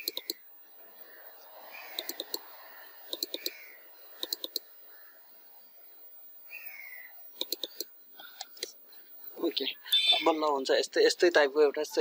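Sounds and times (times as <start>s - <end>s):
computer mouse clicking: 0.0s - 0.4s, 1.9s - 2.4s, 3.1s - 3.6s, 4.2s - 4.6s, 7.4s - 8.7s.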